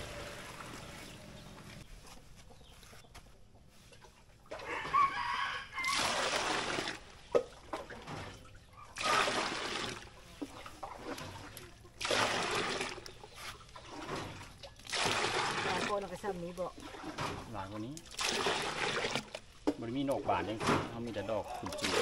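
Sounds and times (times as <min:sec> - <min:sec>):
water sloshing: 0:04.0 - 0:22.0
rooster crowing: 0:04.6 - 0:06.0.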